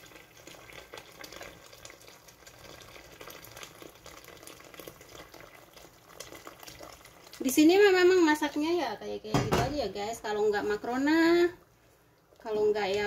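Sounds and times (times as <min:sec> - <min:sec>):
water pouring into a pot: 0:00.0 - 0:08.7.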